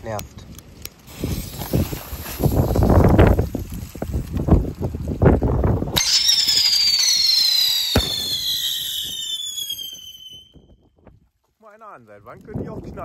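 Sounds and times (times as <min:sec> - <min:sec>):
firework whistle gliding down: 0:05.9 - 0:10.8
sharp firework bang: 0:06.0 - 0:10.1.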